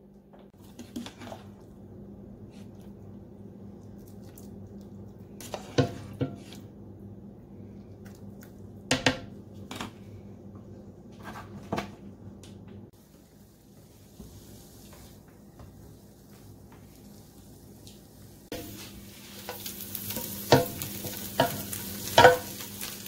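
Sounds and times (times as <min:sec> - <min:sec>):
steady low hum: 0:00.0 - 0:22.8
vegetables sizzling in a pan: 0:13.0 - 0:15.2, 0:16.9 - 0:23.0.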